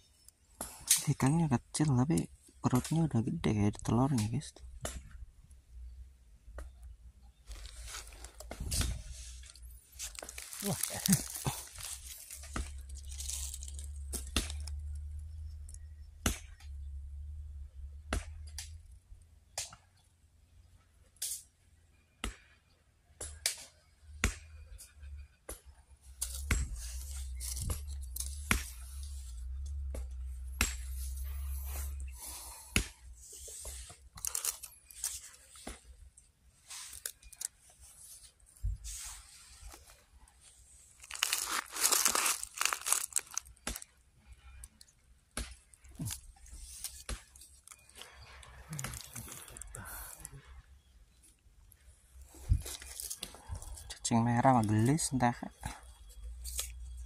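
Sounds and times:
handling clicks and rustles: 7.4s - 15.0s, 33.6s - 38.9s, 39.5s - 44.0s.

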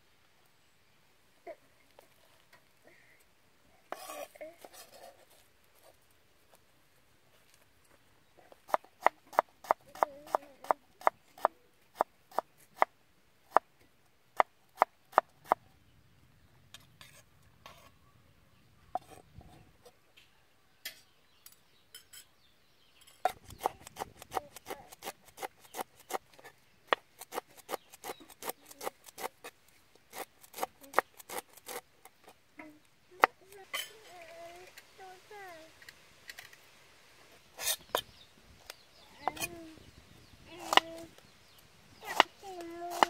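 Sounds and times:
knife chopping on wooden board: 42.0s - 42.3s.

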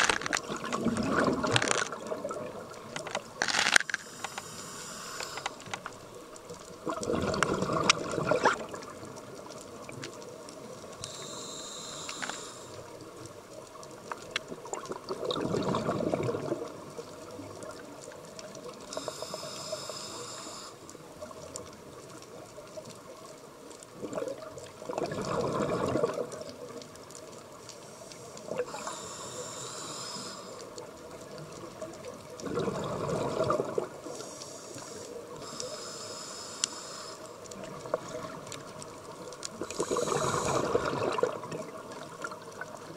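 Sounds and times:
exhaled bubbles: 0.0s - 3.5s, 6.8s - 10.0s, 14.5s - 17.9s, 24.0s - 26.8s, 31.8s - 34.3s, 39.5s - 42.9s
regulator inhale hiss: 3.4s - 6.0s, 11.0s - 13.0s, 18.8s - 21.0s, 27.8s - 30.8s, 34.0s - 37.5s, 39.6s - 41.0s.

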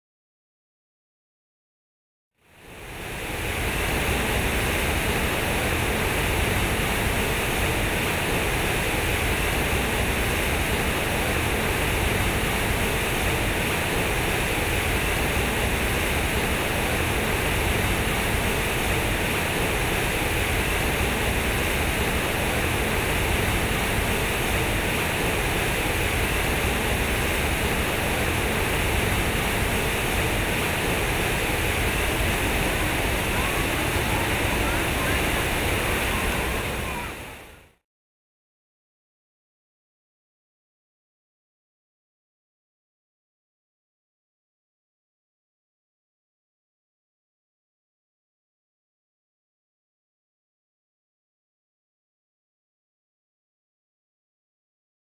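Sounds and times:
fountain water splashing into pool: 3.5s - 37.2s.

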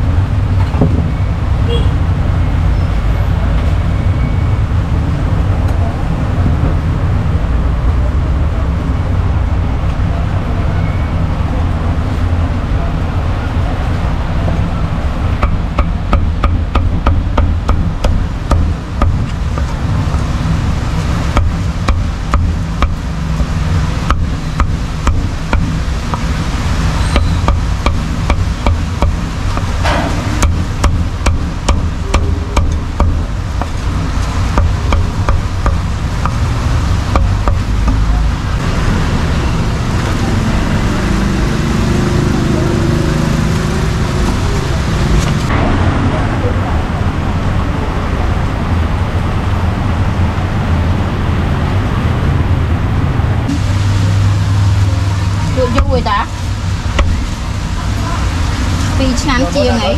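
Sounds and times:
steady low rumble: 11.7s - 41.0s, 43.6s - 59.9s
cleaver chopping on wooden block: 15.4s - 20.3s, 21.4s - 26.3s, 27.2s - 33.8s, 34.5s - 36.4s, 37.1s - 38.1s, 57.0s - 57.2s.

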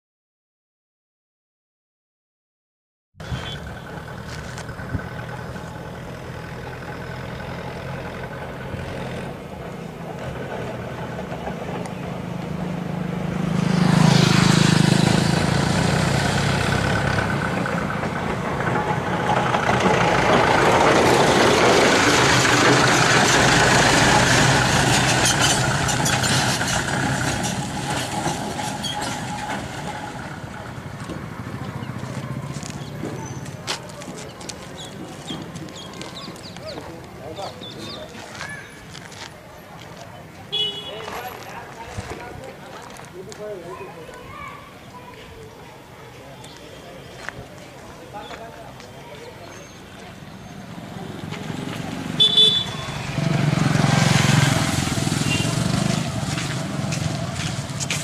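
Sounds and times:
vehicle engine passing: 3.2s - 38.3s, 46.2s - 58.0s.

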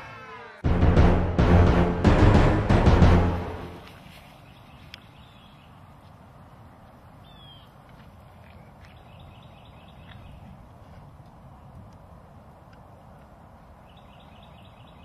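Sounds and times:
drum-heavy music: 0.6s - 3.8s
birds chirping: 4.0s - 6.0s, 7.2s - 10.6s, 13.8s - 15.0s.

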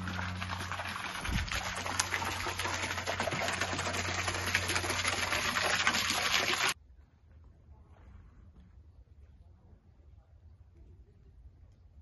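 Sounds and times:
fountain splashing into basin: 0.0s - 6.8s.

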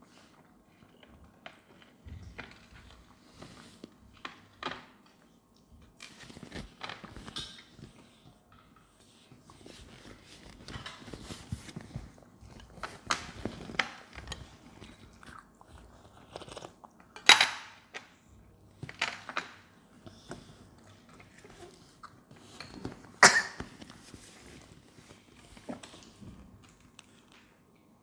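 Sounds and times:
chewing: 7.7s - 17.2s.

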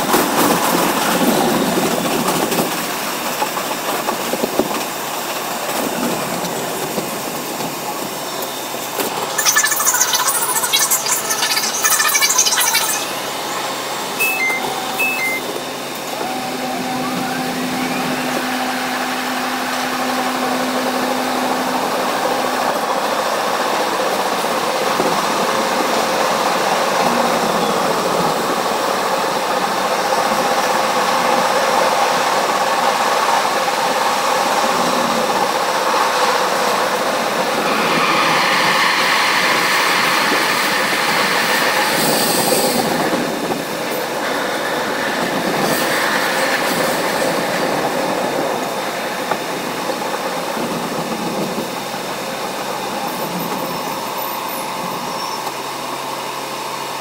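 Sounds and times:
subway train rumbling in tunnel: 0.0s - 57.0s
faint rising whine: 9.2s - 13.3s.

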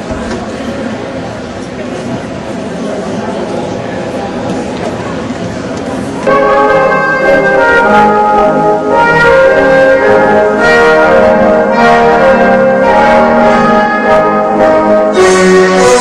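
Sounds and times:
brass music playing: 6.2s - 16.0s.

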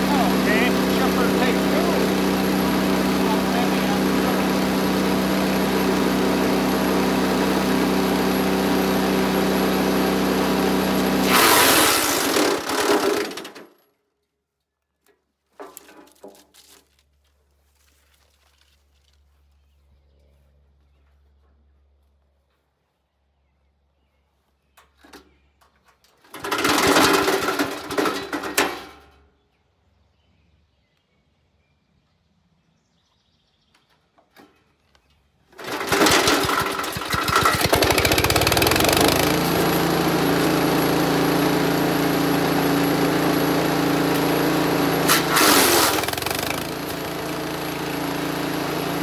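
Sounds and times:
branch grinding in chipper: 0.0s - 13.8s, 26.2s - 29.0s, 35.5s - 49.0s
wood chipper engine running: 0.0s - 13.8s, 26.2s - 29.2s, 35.5s - 49.0s.

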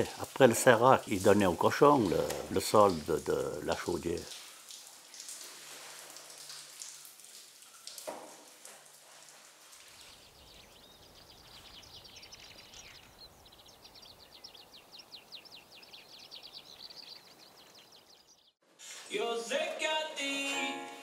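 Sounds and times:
faint steady hiss: 0.0s - 16.3s
music: 18.9s - 21.0s.

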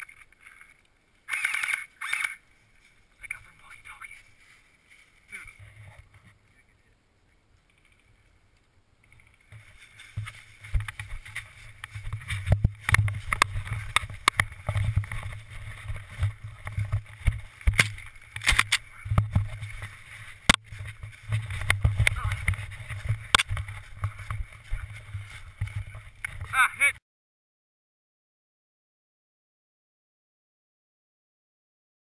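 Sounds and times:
footsteps crunching through dry leaves: 9.6s - 26.3s.

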